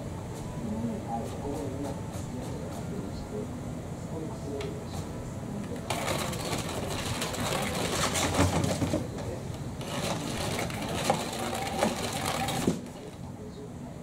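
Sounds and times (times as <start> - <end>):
cat toy motor whirring: 5.9 - 8.9, 9.8 - 13.2.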